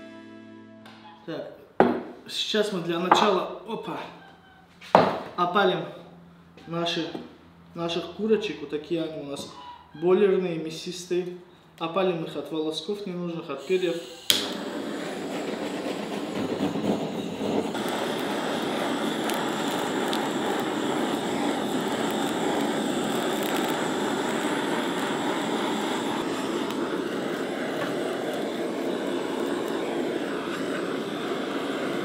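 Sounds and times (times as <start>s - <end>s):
gas torch hissing: 13.5s - 32.0s.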